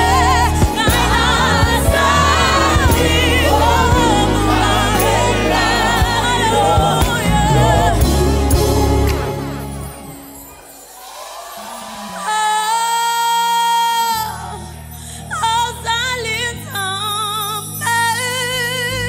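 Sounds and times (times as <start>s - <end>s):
two women singing a duet: 0.0s - 9.3s, 12.2s - 19.0s
instrumental accompaniment: 0.0s - 10.8s
backing choir: 0.0s - 12.6s.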